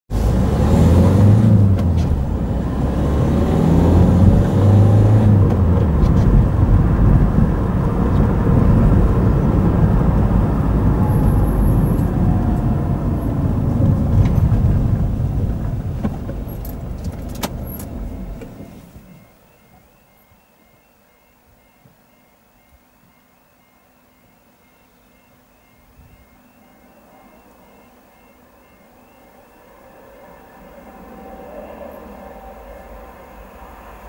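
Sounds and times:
car engine and tyre noise: 0:00.1 - 0:19.9, 0:26.9 - 0:34.0
two-note warning tone: 0:08.9 - 0:13.9, 0:17.6 - 0:31.4.

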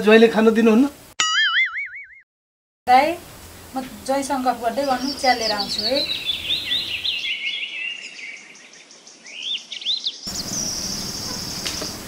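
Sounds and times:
small birds chirping: 0:03.8 - 0:12.0.

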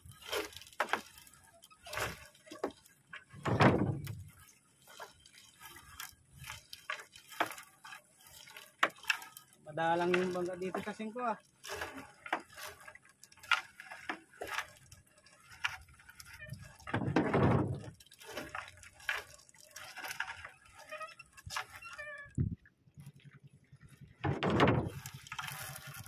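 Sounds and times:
knocks and rustles: 0:00.0 - 0:09.4, 0:15.6 - 0:26.0
water dripping and splashing: 0:00.0 - 0:26.0.

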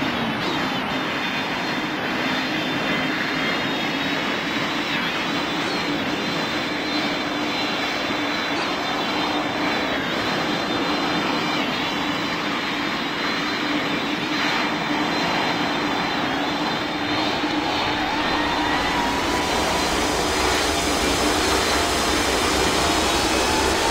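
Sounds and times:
faint engine whine: 0:00.0 - 0:23.9
jet engines and rushing air: 0:05.3 - 0:23.9.

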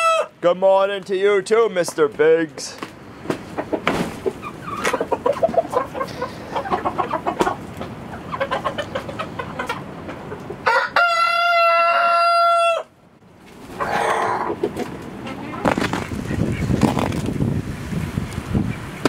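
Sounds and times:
rooster crowing: 0:00.0 - 0:00.3, 0:10.6 - 0:13.0
chickens clucking: 0:01.8 - 0:19.0.

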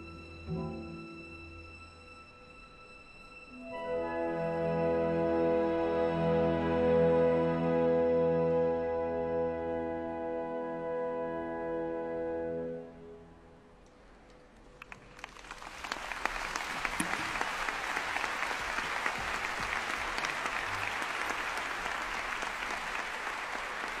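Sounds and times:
audience applause: 0:14.7 - 0:24.0.

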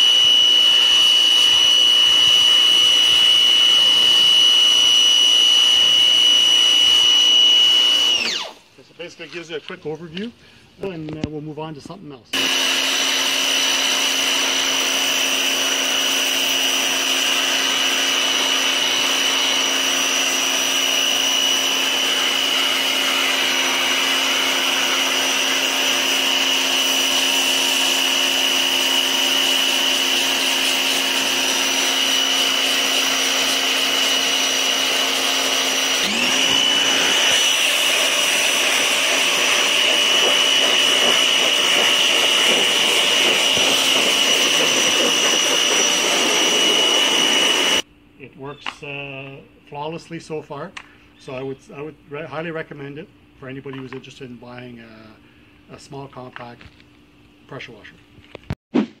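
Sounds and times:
pressure washer motor whine: 0:00.0 - 0:08.7, 0:12.3 - 0:47.9.

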